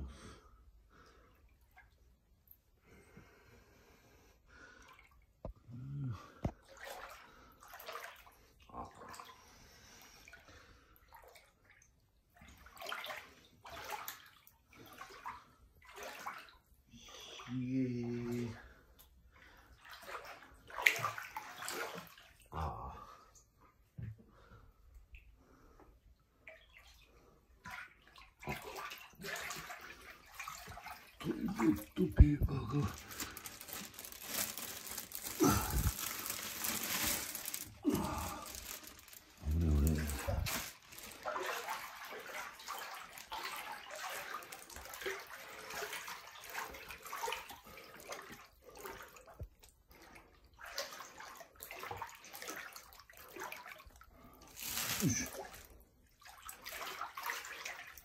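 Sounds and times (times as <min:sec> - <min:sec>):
water sloshing from wading: 0:11.1 - 0:16.7, 0:26.4 - 0:58.0
plastic wrapping crinkling: 0:31.3 - 0:41.4, 0:54.5 - 0:55.6.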